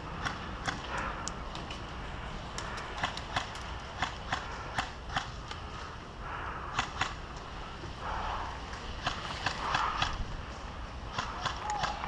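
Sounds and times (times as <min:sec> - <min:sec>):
airsoft gun clicks: 0:02.5 - 0:05.6, 0:11.1 - 0:12.0.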